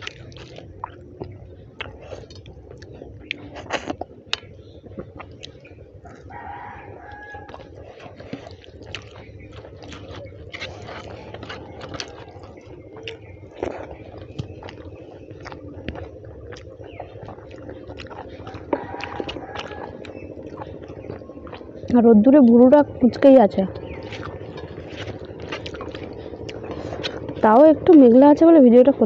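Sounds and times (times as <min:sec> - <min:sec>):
wet chewing: 0:00.0 - 0:28.5
rooster crowing: 0:06.0 - 0:07.7, 0:18.4 - 0:20.2.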